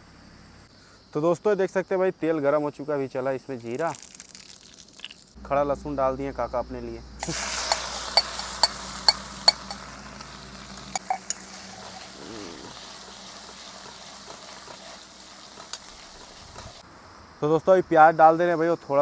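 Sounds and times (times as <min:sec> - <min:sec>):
hot oil sizzling: 0:03.7 - 0:05.4, 0:07.2 - 0:16.9
ladle clinking against pan: 0:07.6 - 0:09.8.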